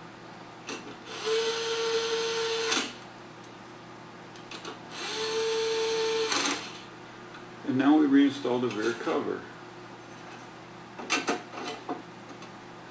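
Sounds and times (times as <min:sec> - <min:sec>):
cordless power screwdriver running: 0:01.1 - 0:02.9, 0:04.9 - 0:06.8.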